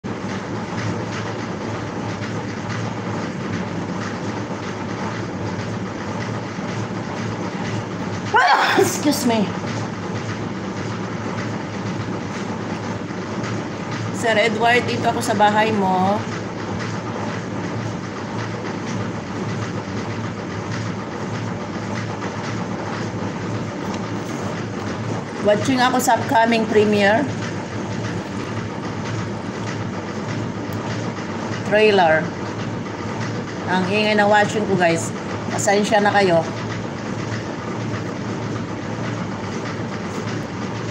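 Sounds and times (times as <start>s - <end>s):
washing machine running: 0.0s - 40.9s
person speaking: 8.4s - 9.6s, 25.4s - 27.4s.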